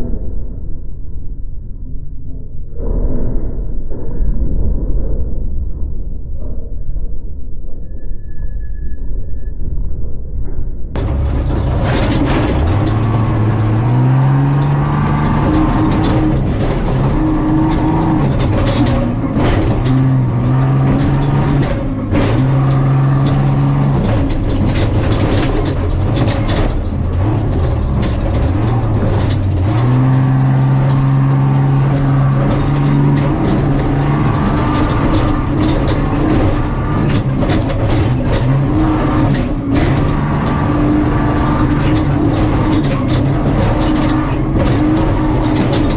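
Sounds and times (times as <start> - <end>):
engine accelerating: 11.0 - 45.9
truck knocks and rattles: 11.0 - 45.9.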